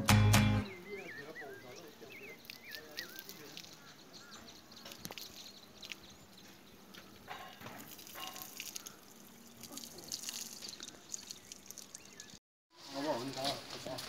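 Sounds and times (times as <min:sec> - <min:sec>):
faint outdoor ambience: 0:00.0 - 0:14.0
light ticks and drips: 0:02.2 - 0:12.4.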